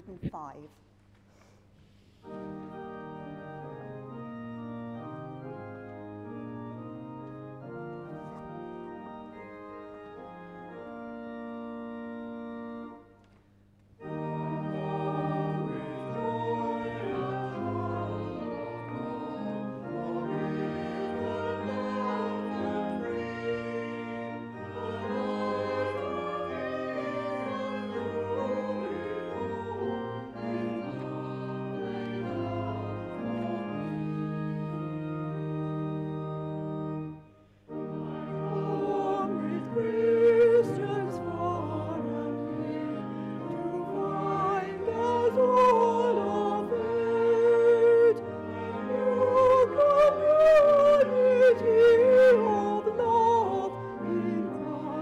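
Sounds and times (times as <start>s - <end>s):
church organ chords: 2.2s - 55.0s
congregation singing a hymn: 14.0s - 55.0s.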